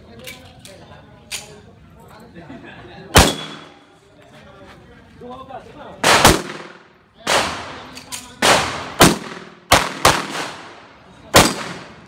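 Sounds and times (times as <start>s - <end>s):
handgun shots echoing: 3.2s - 3.8s, 6.0s - 12.0s.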